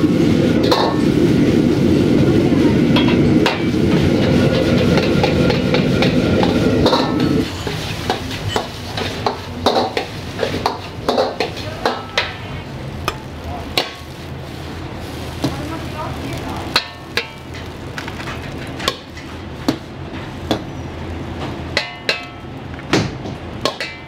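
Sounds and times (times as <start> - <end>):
food frying in a wok: 0.0 - 24.0
metal utensil clanking on wok: 2.9 - 14.1, 16.6 - 20.6, 21.7 - 22.5, 23.6 - 24.0.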